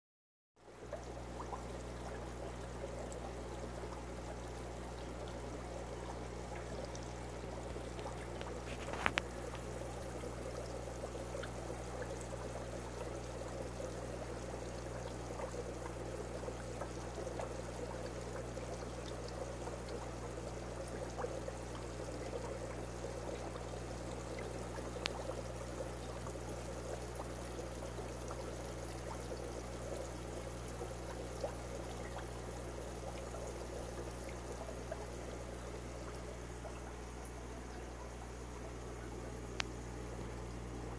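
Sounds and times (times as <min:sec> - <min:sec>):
low steady hum: 0:00.6 - 0:40.9
water trickling: 0:00.6 - 0:40.9.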